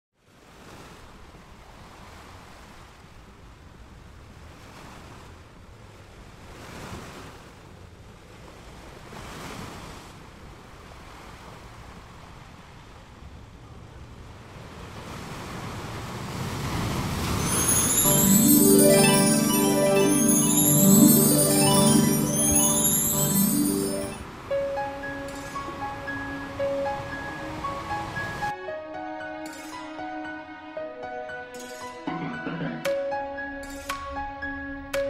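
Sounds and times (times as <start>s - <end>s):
music with mallet percussion: 17.4s - 27.8s.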